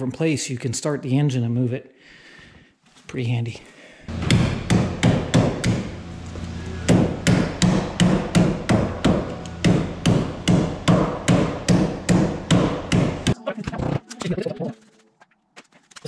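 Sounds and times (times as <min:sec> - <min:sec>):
steady low hum: 0:04.0 - 0:14.5
hammer blows on sheet metal: 0:04.1 - 0:06.1, 0:06.7 - 0:13.4.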